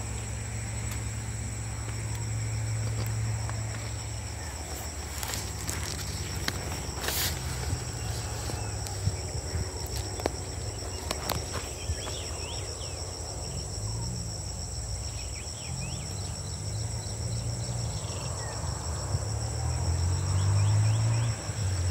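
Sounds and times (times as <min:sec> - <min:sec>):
low rumble: 0:00.0 - 0:15.0
insects buzzing chorus: 0:00.0 - 0:21.9.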